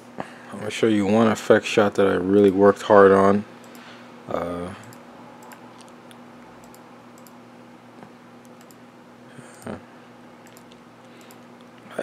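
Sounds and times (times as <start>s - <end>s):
steady low hum: 0.0s - 12.0s
faint computer clicks: 6.6s - 7.4s, 8.0s - 8.8s, 10.4s - 11.8s.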